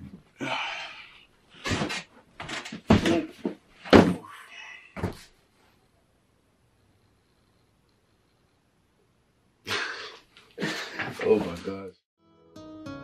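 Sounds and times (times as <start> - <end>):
box knocks and thumps: 2.7 - 4.2.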